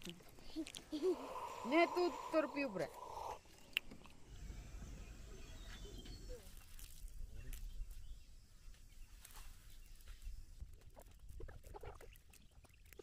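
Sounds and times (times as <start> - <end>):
low rumble: 4.2 - 6.5.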